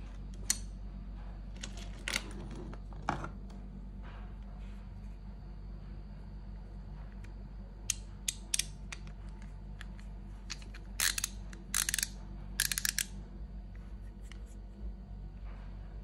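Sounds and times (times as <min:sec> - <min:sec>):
steady low hum: 0:00.0 - 0:16.0
ratcheting screwdriver clicking: 0:10.5 - 0:13.1.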